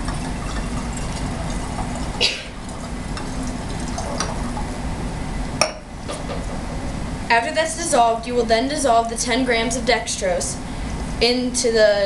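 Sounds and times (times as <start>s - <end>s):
liquid stirring: 0.0s - 4.8s
background hiss and hum: 0.0s - 12.0s.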